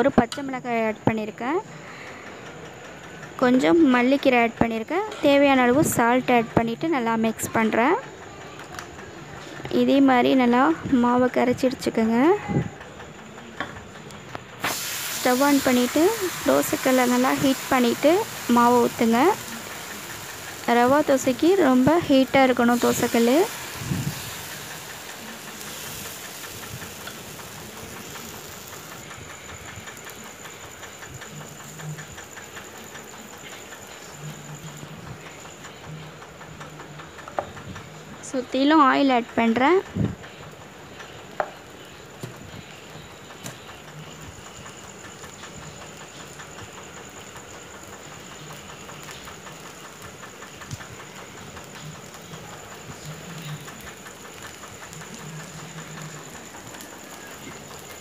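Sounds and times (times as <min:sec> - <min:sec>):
batter sizzling on a griddle: 0:13.1 - 0:58.0.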